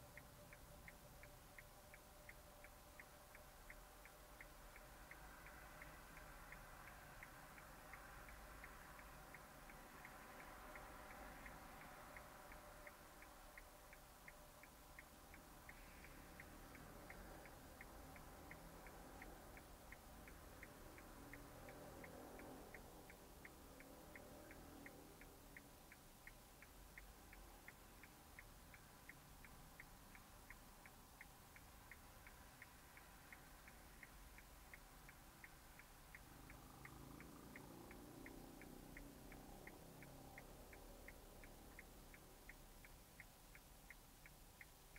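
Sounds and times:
faint indicator ticking: 0:00.0 - 0:44.9.

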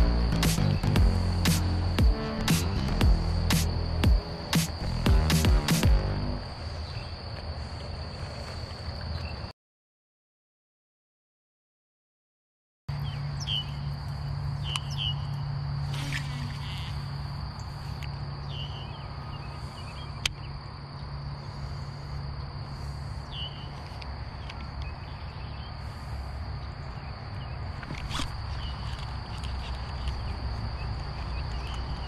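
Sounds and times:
steady low hum: 0:00.0 - 0:09.0, 0:12.9 - 0:32.0
insects trilling: 0:00.0 - 0:09.5, 0:12.9 - 0:32.0
bird chirps: 0:12.9 - 0:13.9, 0:14.6 - 0:15.4, 0:18.4 - 0:21.1, 0:23.2 - 0:23.8.

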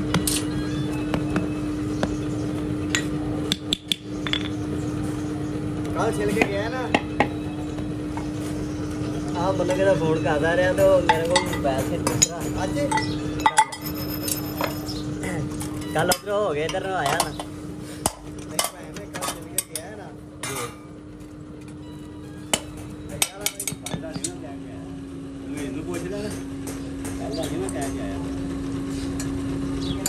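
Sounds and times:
steady hum: 0:00.0 - 0:30.0
hand tools knocking on steel: 0:10.7 - 0:13.8, 0:22.5 - 0:24.4, 0:25.6 - 0:28.2.

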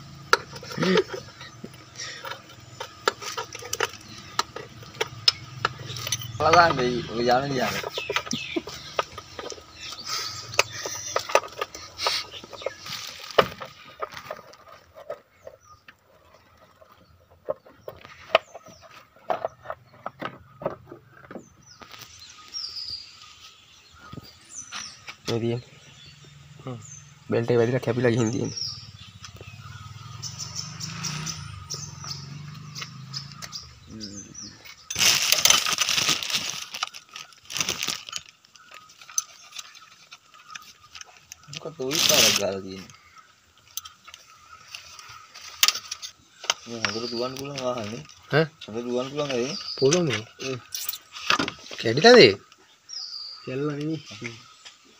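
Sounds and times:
scraping and rustling on metal: 0:00.3 - 0:22.2
light metallic clinks: 0:00.5 - 0:06.9.

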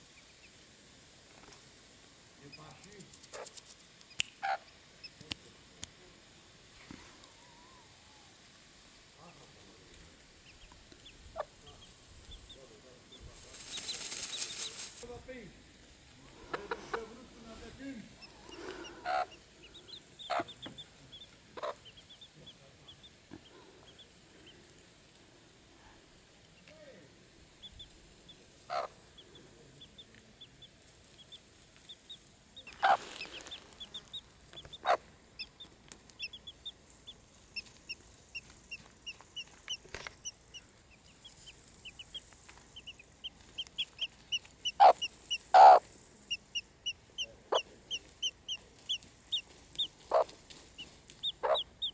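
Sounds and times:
hen clucking: 0:03.3 - 0:05.2, 0:10.4 - 0:14.8, 0:16.3 - 0:24.6, 0:27.5 - 0:51.9
chicks peeping: 0:10.3 - 0:14.9, 0:16.3 - 0:24.6, 0:27.5 - 0:51.9.

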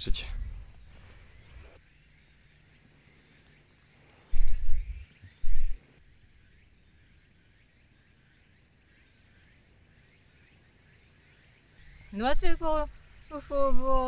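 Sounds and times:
insects trilling: 0:00.0 - 0:14.0
low thumps on microphone: 0:04.3 - 0:05.8.

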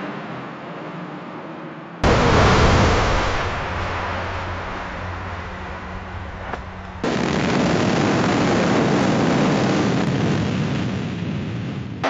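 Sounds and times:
car crash sound effect: 0:02.0 - 0:08.8
steady low hum: 0:02.0 - 0:10.1.

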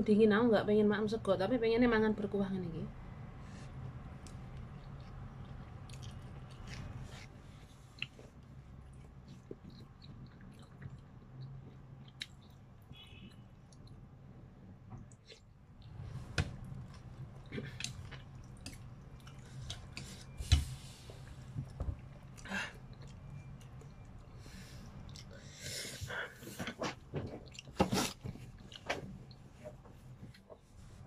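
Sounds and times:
person chewing noodles: 0:03.8 - 0:14.0, 0:15.0 - 0:20.4, 0:21.1 - 0:25.7, 0:27.3 - 0:29.5.

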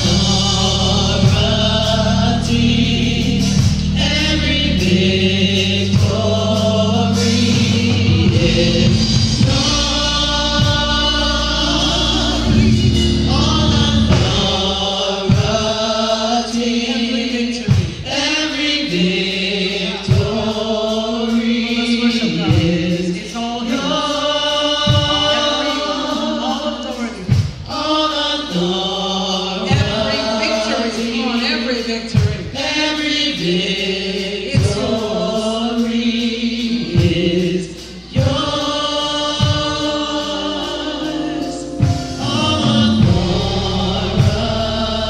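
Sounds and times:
bass guitar: 0:00.0 - 0:15.7, 0:40.9 - 0:45.0
choir singing in harmony: 0:00.0 - 0:45.0
live band playing: 0:00.0 - 0:45.0.

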